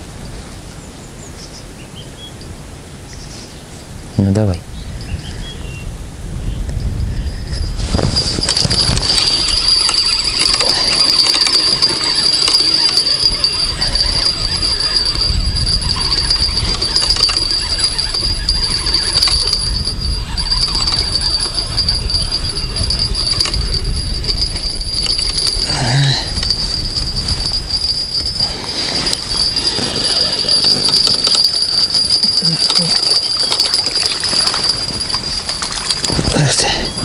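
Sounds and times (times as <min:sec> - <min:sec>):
fishing reel whining: 0:07.2 - 0:36.3
rumbling handling noise: 0:07.4 - 0:37.0.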